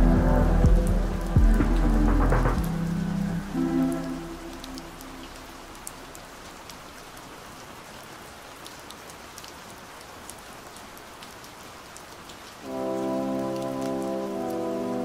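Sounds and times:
song: 0.0 - 5.7, 12.6 - 15.0
steady rain: 0.0 - 15.0.

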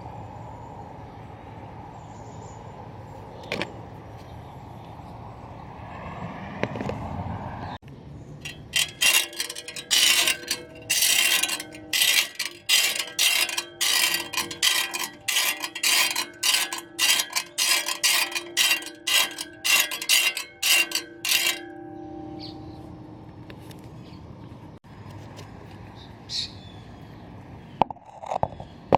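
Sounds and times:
reel mower blades clattering: 8.4 - 22.8
faint steady ring: 8.4 - 24.2.

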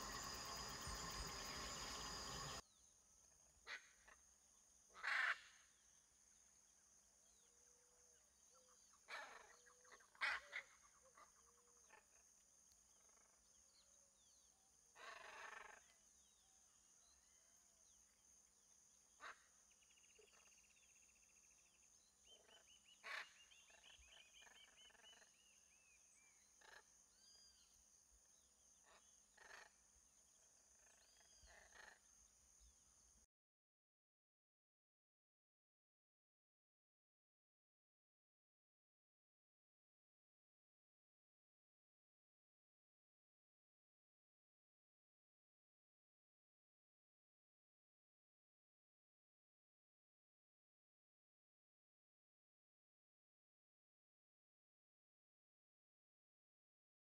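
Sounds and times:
macaws squawking: 5.0 - 5.5.

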